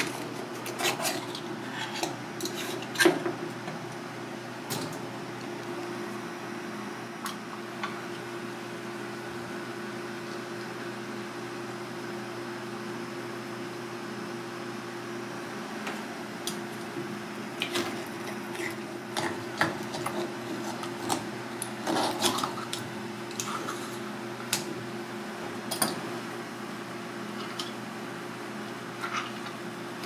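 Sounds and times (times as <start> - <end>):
knife scraping shells: 0.0 - 3.2, 17.6 - 24.0
steady hum: 0.0 - 30.0.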